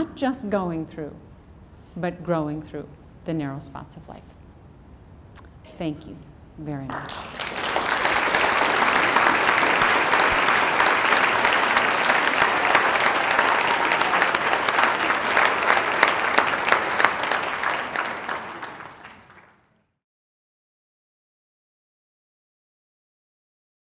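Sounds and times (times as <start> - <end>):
audience applauding: 6.9 - 19.8.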